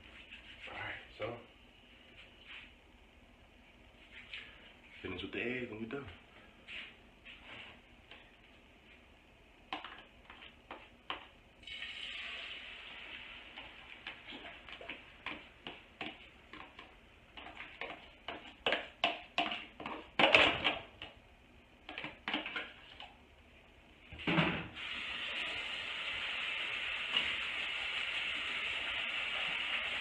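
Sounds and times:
eggs sizzling in a frying pan: 11.2s - 16.6s, 24.8s - 30.0s.

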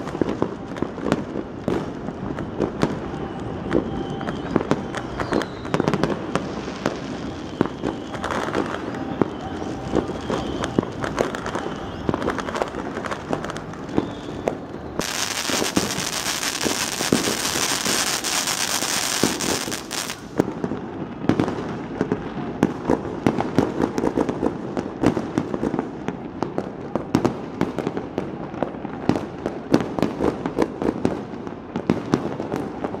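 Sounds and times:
fireworks bangs and pops: 0.0s - 33.0s
rapid crackling and hiss: 5.8s - 20.6s.

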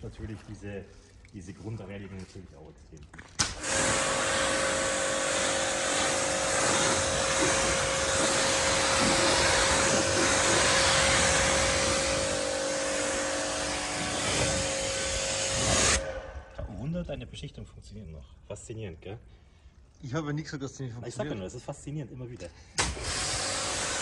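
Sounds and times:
pressure washer spraying water: 3.5s - 16.2s, 22.8s - 24.0s
pressure washer motor hum: 3.6s - 16.3s, 22.8s - 24.0s.

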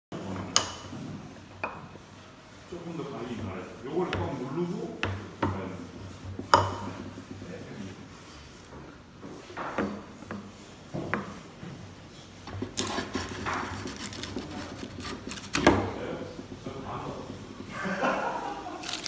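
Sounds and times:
tool knocking against wood: 6.4s - 7.2s
hand plane scraping wood: 12.6s - 15.8s.

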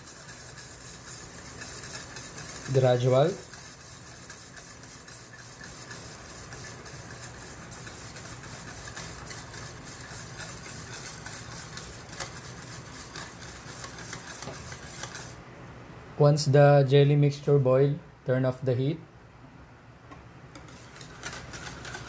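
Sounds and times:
utensil stirring in metal pot: 0.0s - 15.4s, 20.6s - 22.0s.

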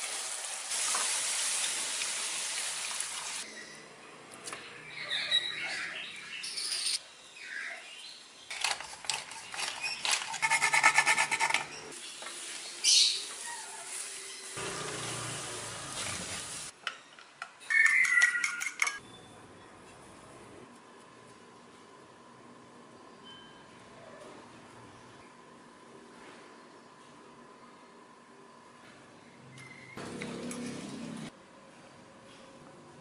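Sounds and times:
wooden spoon scraping a pan: 9.6s - 11.8s.

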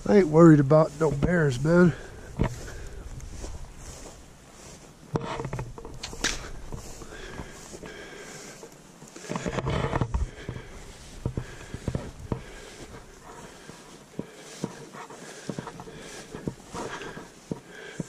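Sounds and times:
handling noise at microphone: 2.3s - 8.0s, 8.6s - 18.0s.

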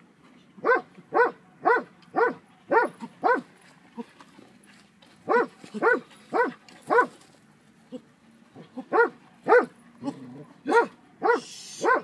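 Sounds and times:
dog barking: 0.6s - 3.5s, 5.3s - 7.2s, 8.9s - 9.8s, 10.7s - 12.0s.

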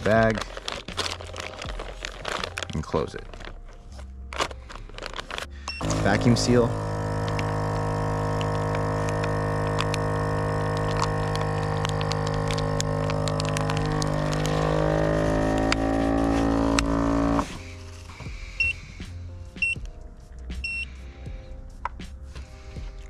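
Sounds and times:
plastic bag crackling: 0.0s - 18.2s
vacuum sealer pump running: 5.7s - 17.7s.

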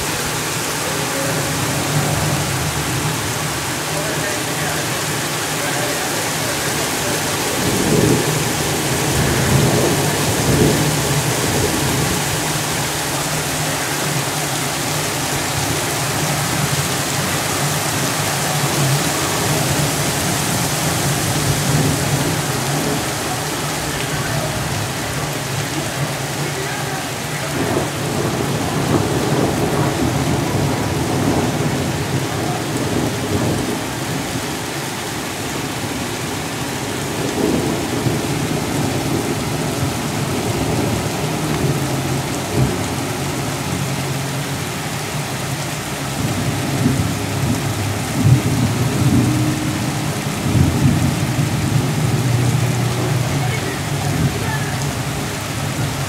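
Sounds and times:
low thunder rumble: 0.0s - 26.5s, 27.1s - 34.4s, 46.1s - 56.0s
heavy rain pouring: 0.0s - 56.0s.

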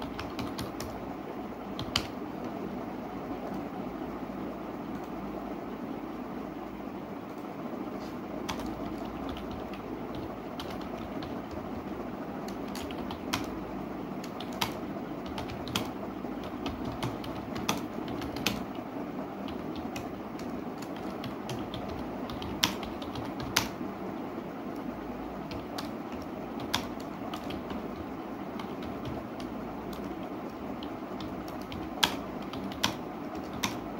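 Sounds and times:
typing on keyboard: 0.0s - 1.0s, 1.7s - 2.6s, 8.4s - 13.6s, 14.2s - 18.8s, 19.4s - 23.8s, 24.7s - 33.9s
low background noise: 0.0s - 33.9s.

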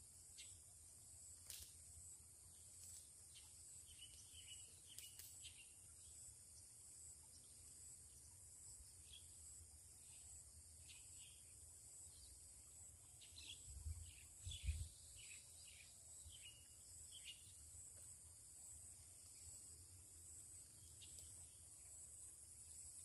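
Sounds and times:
bird chirps: 13.2s - 17.6s.

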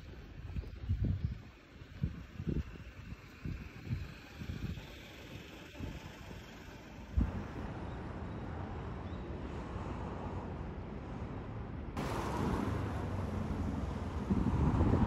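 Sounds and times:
wind buffeting microphone: 0.0s - 7.9s, 12.0s - 15.0s
traffic rumble: 0.0s - 15.0s.

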